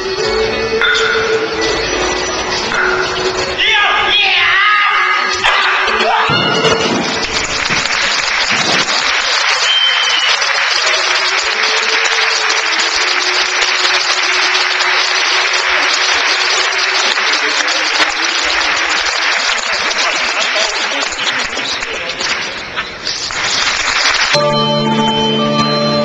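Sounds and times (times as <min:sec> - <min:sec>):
audience applauding: 0:06.6 - 0:24.9
high whistle-like tone: 0:09.6 - 0:10.4
held musical note: 0:24.4 - 0:26.0.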